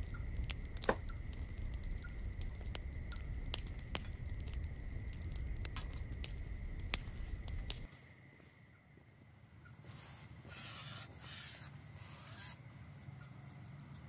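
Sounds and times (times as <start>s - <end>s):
low rumble: 0.0s - 7.9s
wood fire crackling: 0.0s - 7.9s.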